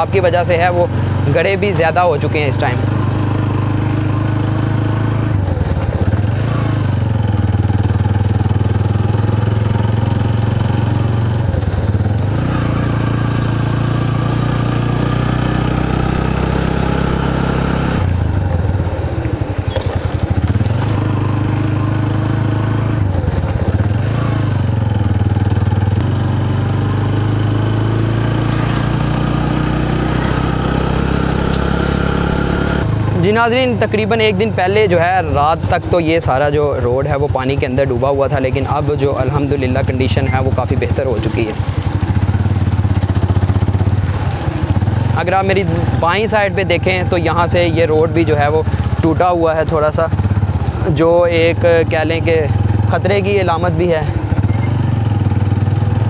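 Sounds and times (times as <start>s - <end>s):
motorcycle engine running: 0.0s - 56.0s
light rattles: 5.6s - 8.1s, 19.5s - 21.1s, 23.1s - 25.7s.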